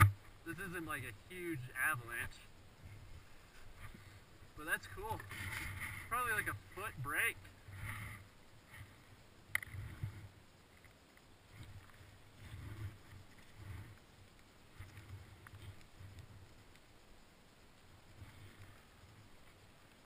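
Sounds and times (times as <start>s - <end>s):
ski poles planting: 0.0s - 0.8s, 3.4s - 16.9s
skis sliding through snow: 11.5s - 16.4s.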